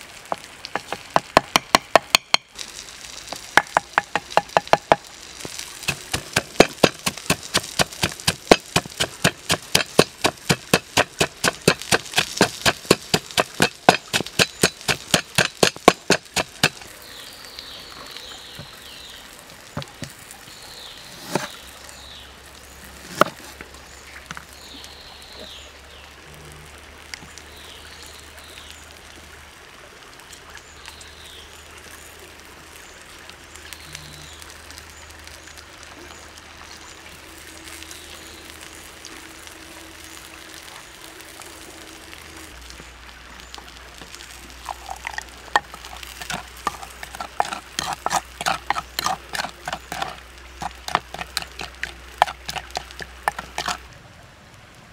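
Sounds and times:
pestle pounding in wooden mortar: 0.7 - 2.5, 3.6 - 5.1, 5.9 - 16.9, 44.6 - 53.8.

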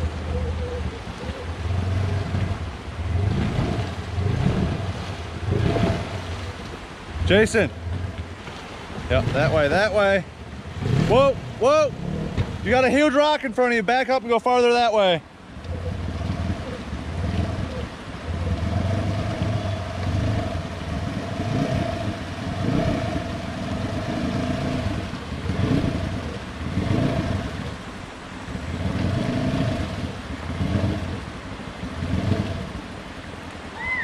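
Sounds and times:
wheels churning water: 0.0 - 34.0
engine revving in bursts: 1.6 - 6.3, 15.9 - 27.6, 28.7 - 31.2, 32.0 - 32.8.

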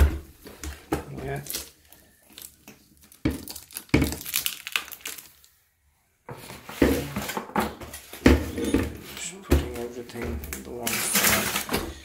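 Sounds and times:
plastic wrapping crinkling: 0.4 - 5.6, 9.0 - 12.0.

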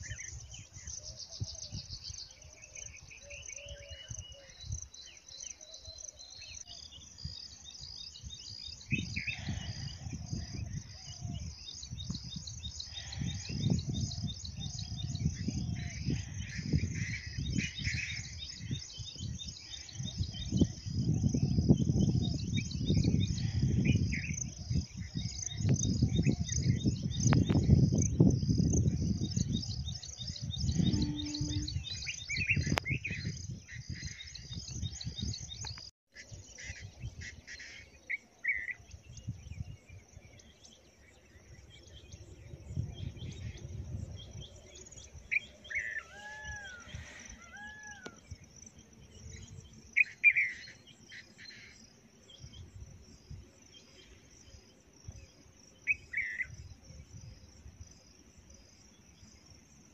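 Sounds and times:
birds chirping: 0.0 - 35.9
insects pulsing high-pitched: 30.4 - 32.2.

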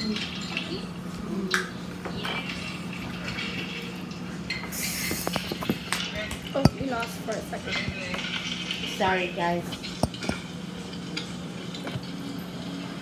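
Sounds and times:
bowls and utensils knocking: 6.6 - 7.1, 9.8 - 10.5.

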